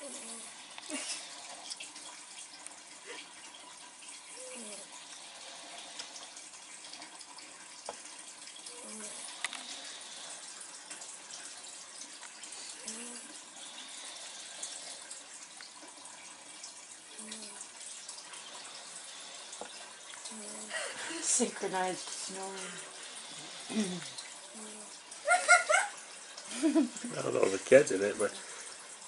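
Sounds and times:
breathy hiss: 0:00.0 - 0:01.8, 0:04.3 - 0:07.0, 0:08.1 - 0:15.6, 0:16.6 - 0:29.0
dogs snoring: 0:00.0 - 0:01.8, 0:04.3 - 0:06.5, 0:08.6 - 0:11.1, 0:12.4 - 0:15.3, 0:18.4 - 0:25.0.

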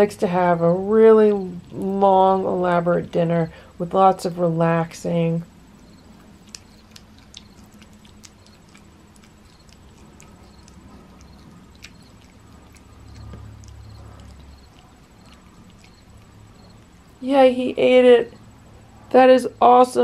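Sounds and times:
cat chewing and licking: 0:05.6 - 0:17.2.

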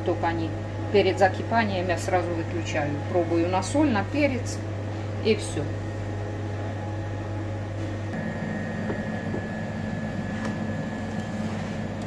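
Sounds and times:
kitchen equipment hum: 0:00.0 - 0:12.0
faint high whine: 0:08.1 - 0:12.0.

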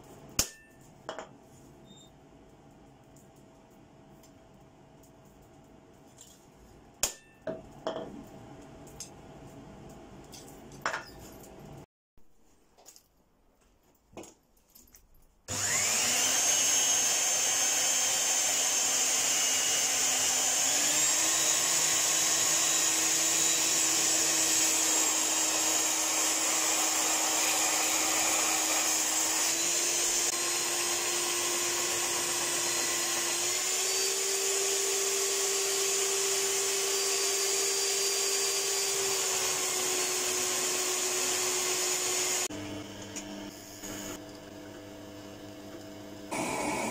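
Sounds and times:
belt sander motor whine: 0:15.5 - 0:44.4, 0:46.3 - 0:46.9.

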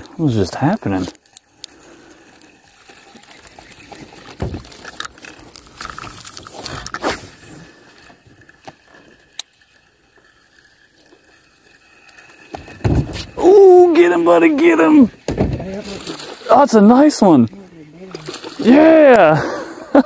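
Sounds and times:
fishing tackle rustling and knocking: 0:00.0 - 0:19.3.

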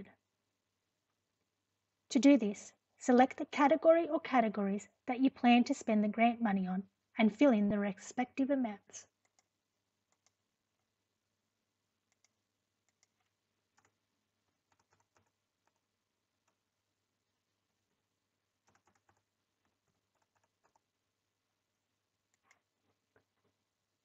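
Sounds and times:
mouse clicks: 0:09.2 - 0:09.5, 0:10.1 - 0:10.4, 0:12.1 - 0:14.0, 0:22.3 - 0:22.7.

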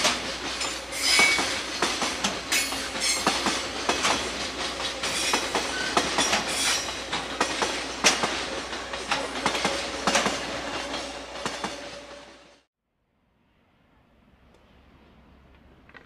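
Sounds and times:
train wheels clacking over rail joints: 0:00.0 - 0:12.2.

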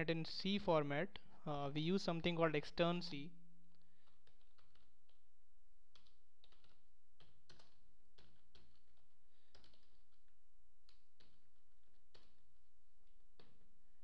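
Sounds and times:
typing on computer keyboard: 0:03.7 - 0:05.3, 0:05.9 - 0:13.7.

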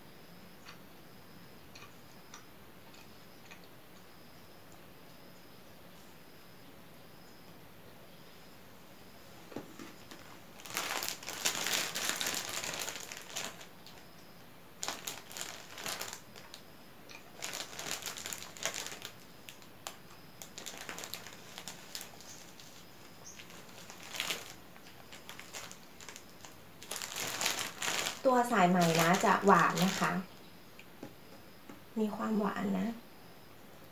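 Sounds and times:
plastic bag crinkling: 0:10.0 - 0:14.0, 0:14.8 - 0:16.6, 0:17.2 - 0:30.3.

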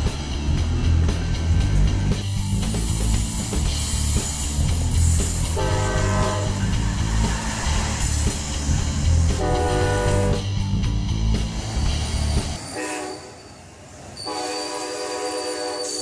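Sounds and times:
background music: 0:00.0 - 0:12.6
train rumbling past: 0:00.0 - 0:16.0
locomotive horn blast: 0:05.5 - 0:06.7, 0:09.3 - 0:10.5, 0:12.7 - 0:13.4, 0:14.2 - 0:16.0.

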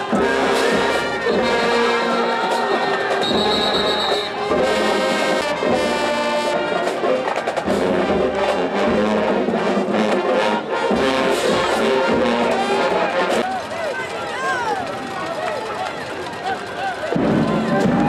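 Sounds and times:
brass section holding long notes: 0:00.1 - 0:13.4.

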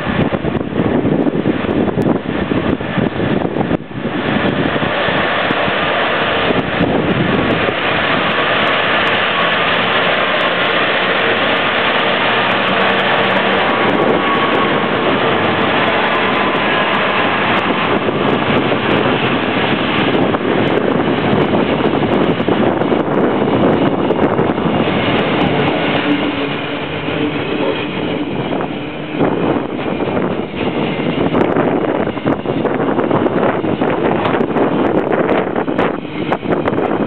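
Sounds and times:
diesel locomotive engine: 0:00.0 - 0:37.0
wagons rolling on rails: 0:04.3 - 0:37.0.

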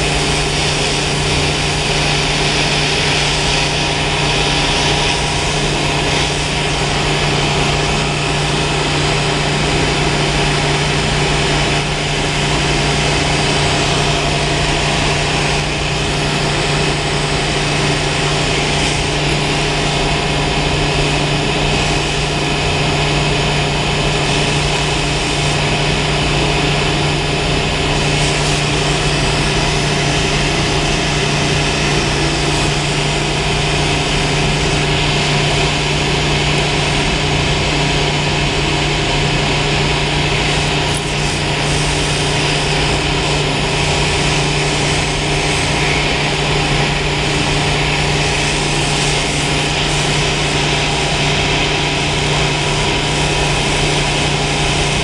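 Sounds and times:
gas torch hissing: 0:00.0 - 0:55.0
machinery humming: 0:00.0 - 0:55.0.

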